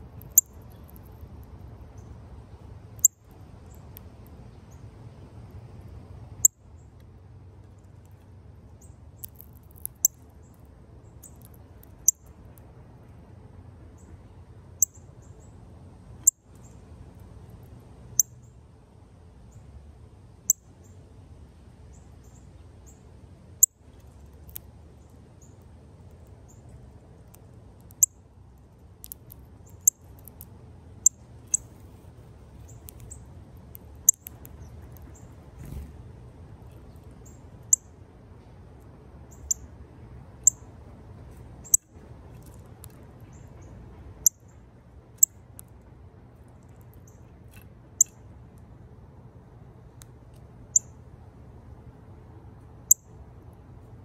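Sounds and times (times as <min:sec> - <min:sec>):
low background rumble: 0:00.0 - 0:54.0
bird cracking seeds clicks: 0:09.2 - 0:10.2.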